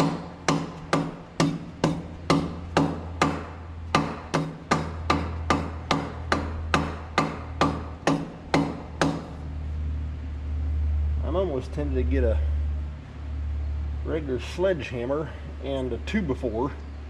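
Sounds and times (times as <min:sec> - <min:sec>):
mallet knocking on metal: 0:00.0 - 0:09.4
steady low hum: 0:00.0 - 0:17.0.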